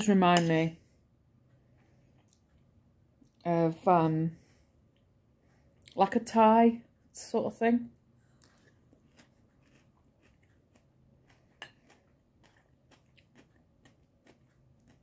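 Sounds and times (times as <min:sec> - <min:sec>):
crunchy chewing: 0:08.2 - 0:15.0.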